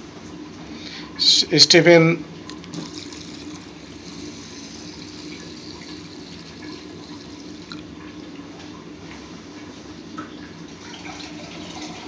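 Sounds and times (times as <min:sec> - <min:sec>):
water pouring into metal pot: 0:02.5 - 0:08.0, 0:10.9 - 0:12.0.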